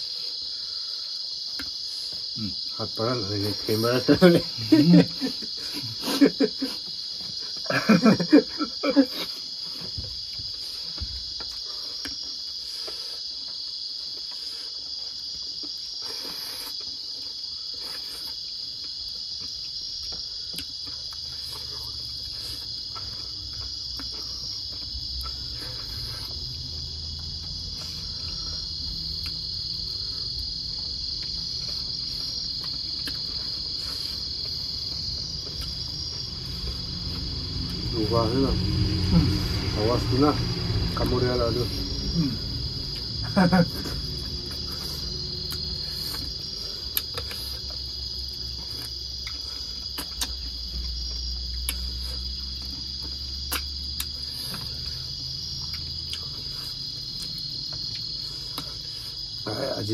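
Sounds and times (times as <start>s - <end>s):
insect chorus trilling: 0.0s - 59.9s
mouth smacks and chewing: 1.4s - 2.2s, 13.4s - 26.7s, 30.7s - 37.8s, 44.0s - 54.9s.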